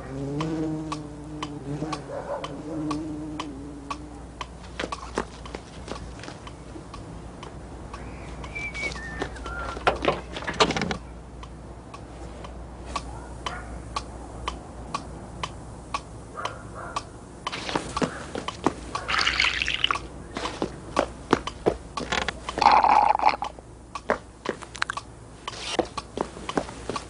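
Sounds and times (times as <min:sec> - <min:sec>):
clock ticking: 0:00.0 - 0:08.6, 0:11.0 - 0:19.1, 0:19.8 - 0:27.0
falling whistle-like notes: 0:08.0 - 0:09.8.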